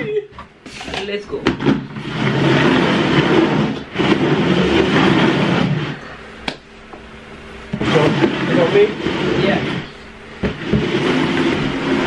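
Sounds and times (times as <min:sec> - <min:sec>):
plastic bowls scraping on tabletop: 0:00.7 - 0:06.6, 0:07.6 - 0:12.0.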